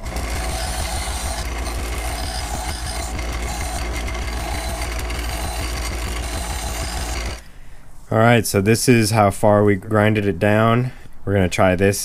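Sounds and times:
metal nut grinding on wheel: 0.0s - 7.4s
bench grinder humming: 0.0s - 7.5s.

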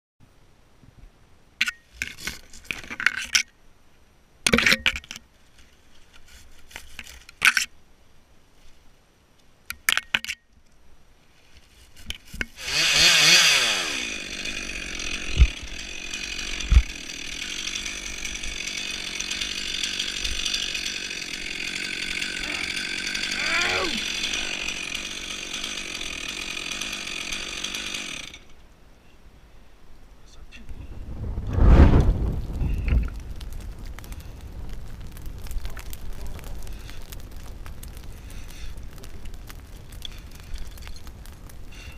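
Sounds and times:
rustling and scraping palm fronds: 1.7s - 3.5s, 4.5s - 7.8s, 11.2s - 28.6s, 30.5s - 41.9s
chainsaw revving and running: 12.6s - 28.5s.

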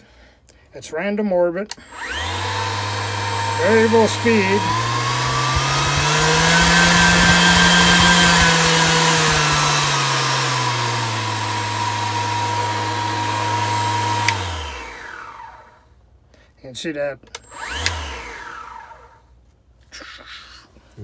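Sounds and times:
palm sander running: 1.8s - 15.7s, 17.4s - 19.1s.

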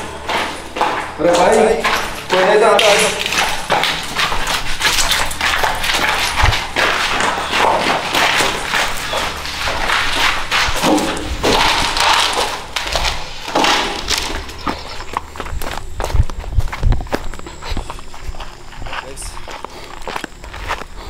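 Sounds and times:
hurried footsteps: 0.0s - 21.0s.

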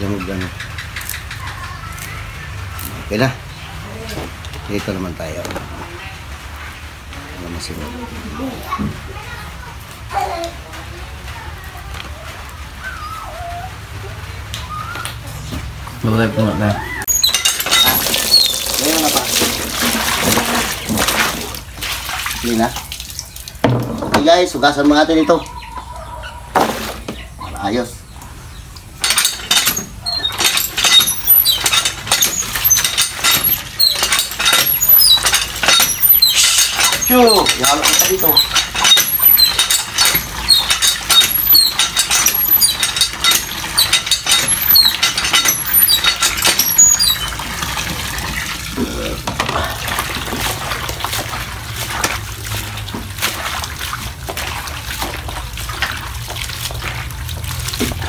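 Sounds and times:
water splashing into plastic basin: 17.0s - 24.9s, 46.6s - 58.0s.

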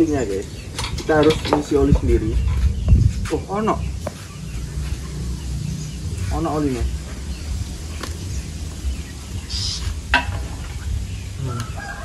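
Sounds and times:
low rumble: 0.0s - 11.8s
chickens clucking: 0.0s - 12.0s
rooster crowing: 11.4s - 12.0s.

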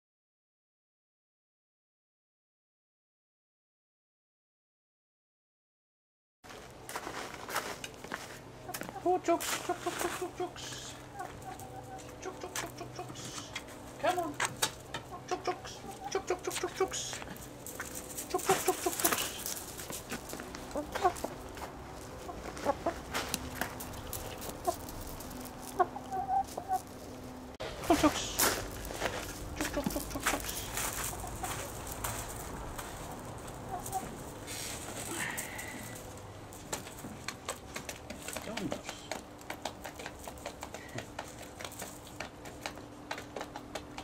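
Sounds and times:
hens clucking: 8.2s - 44.0s
beaks tapping dish: 37.2s - 44.0s.

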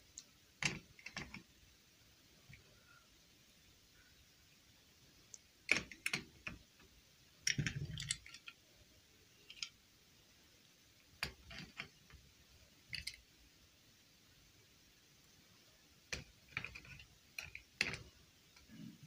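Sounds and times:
plastic figures clicking: 0.2s - 1.4s, 5.3s - 6.6s, 7.4s - 8.6s, 11.2s - 12.0s, 12.9s - 13.2s, 16.1s - 18.7s.

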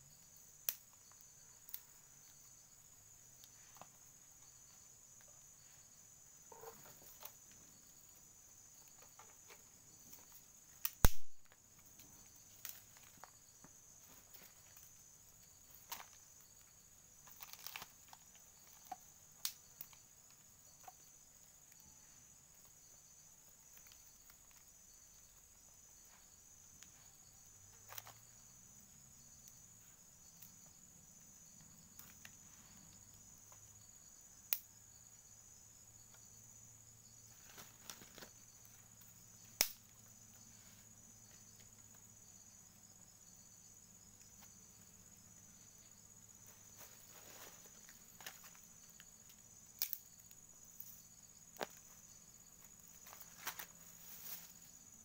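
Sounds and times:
insects chirring: 0.0s - 55.0s
twig fire clicks: 0.3s - 2.6s, 8.7s - 22.8s, 23.4s - 25.7s, 31.6s - 33.6s, 34.4s - 34.8s, 37.4s - 40.2s, 47.8s - 52.0s.

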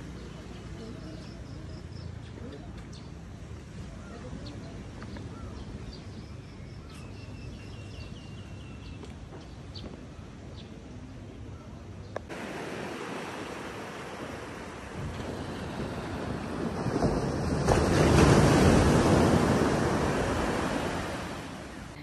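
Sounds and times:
small waves washing onto sand: 12.3s - 22.0s
wind on microphone: 12.3s - 22.0s.

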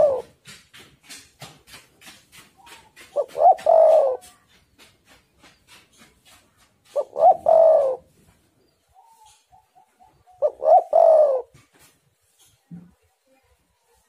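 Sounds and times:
dove cooing: 0.0s - 0.4s, 2.6s - 4.6s, 6.8s - 8.2s, 8.9s - 11.6s.

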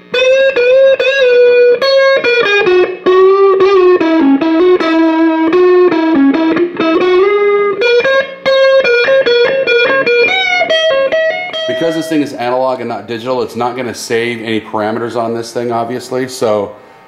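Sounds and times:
distorted electric guitar lead: 0.0s - 13.0s.

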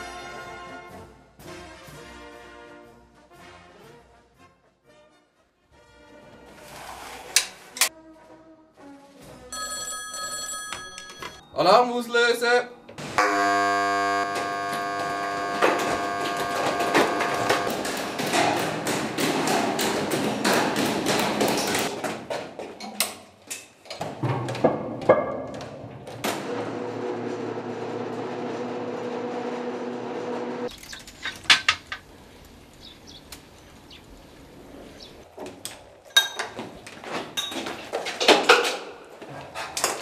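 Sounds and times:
cart rolling on track: 15.0s - 22.0s.

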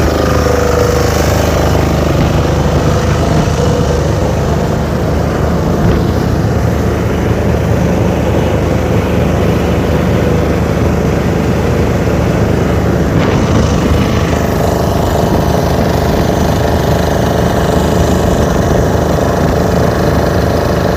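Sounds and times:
churning wake: 0.0s - 20.9s
outboard engine droning: 0.0s - 20.9s
wind rushing: 12.8s - 16.6s.

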